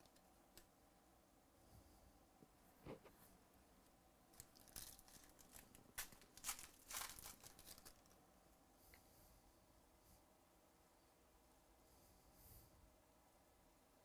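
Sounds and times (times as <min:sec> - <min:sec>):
foil pack tearing and crinkling: 0:04.4 - 0:08.2.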